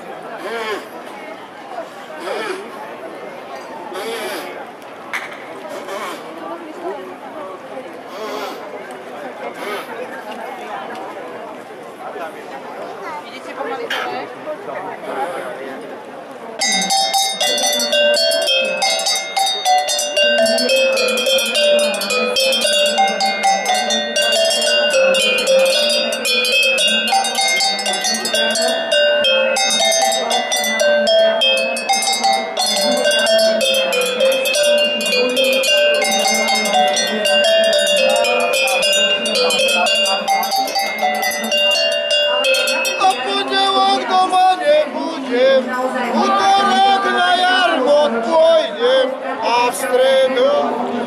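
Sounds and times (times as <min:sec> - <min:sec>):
cowbells struck playing a tune: 0:16.6 - 0:44.2.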